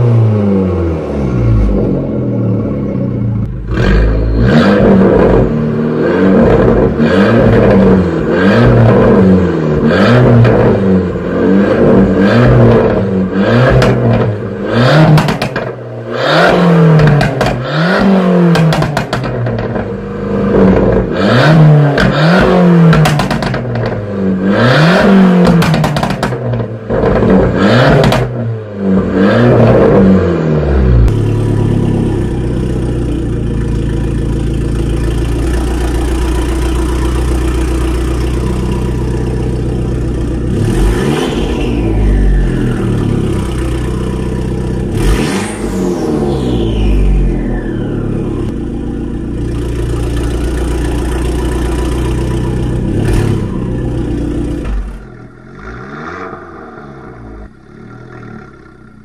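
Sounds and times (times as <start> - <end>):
car engine revving: 0.0 - 59.0
exhaust crackles and bangs: 12.6 - 15.8, 16.9 - 17.8, 18.4 - 20.0, 21.9 - 24.1, 25.4 - 28.5
engine idling: 30.8 - 55.7.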